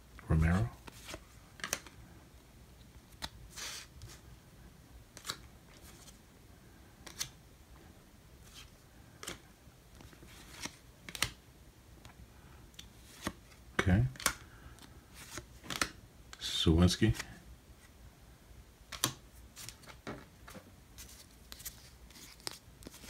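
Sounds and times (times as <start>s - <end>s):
cards sliding off stack: 13.0s - 13.4s.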